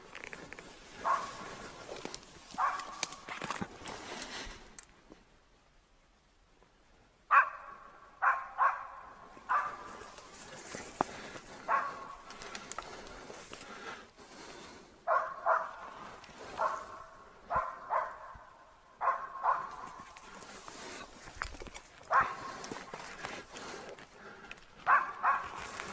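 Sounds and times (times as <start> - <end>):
dog barking: 1.0 - 1.5, 2.6 - 3.0, 7.3 - 10.0, 11.6 - 12.2, 15.1 - 20.0, 22.1 - 22.6, 24.8 - 25.6.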